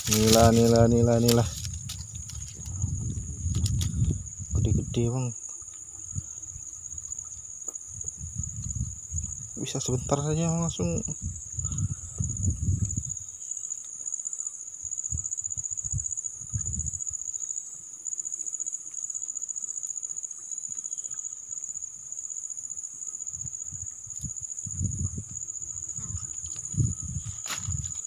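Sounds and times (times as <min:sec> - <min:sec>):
low thumps and rumbles: 0:00.0 - 0:05.0
insects chirring: 0:00.0 - 0:28.0.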